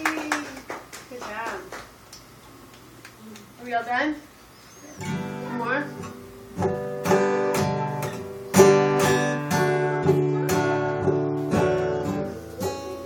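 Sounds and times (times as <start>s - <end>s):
acoustic guitar strumming: 5.0s - 13.0s.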